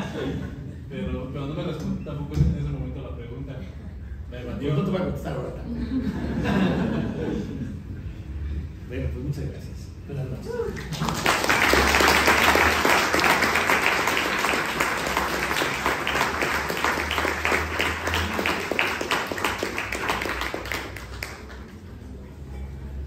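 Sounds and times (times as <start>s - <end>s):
audience applauding: 10.8s - 22.2s.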